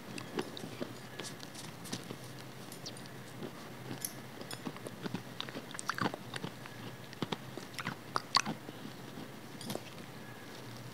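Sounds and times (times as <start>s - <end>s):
person chewing food: 0.0s - 10.8s.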